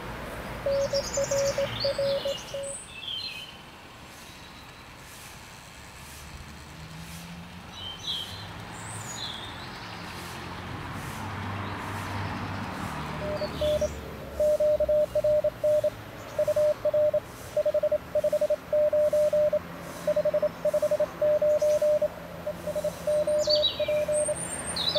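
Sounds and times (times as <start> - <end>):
birds chirping: 0.6 - 3.6, 11.6 - 24.9
morse code tone: 0.7 - 2.7, 13.2 - 24.4
receiver hiss: 13.2 - 24.4.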